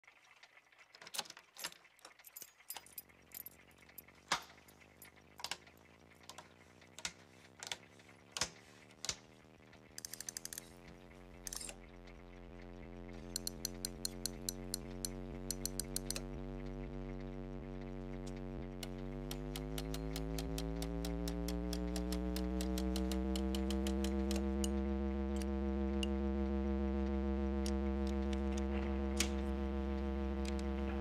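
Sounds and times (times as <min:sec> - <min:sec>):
low electrical hum: 0:02.2 - 0:31.0
dial ratcheting clicks: 0:10.0 - 0:10.7, 0:13.2 - 0:16.3, 0:18.8 - 0:24.8
console switches clicking: 0:13.3 - 0:16.3, 0:18.8 - 0:26.2.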